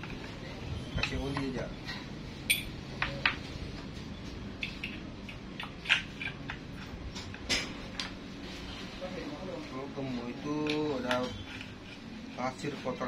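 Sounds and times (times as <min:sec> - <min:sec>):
metal clicks and scrapes: 0:04.6 - 0:08.2.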